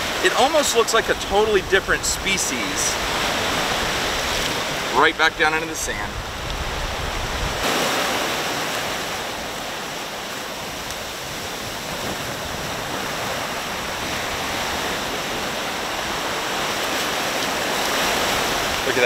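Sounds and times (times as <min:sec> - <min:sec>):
surf washing over sand: 0:00.0 - 0:19.0.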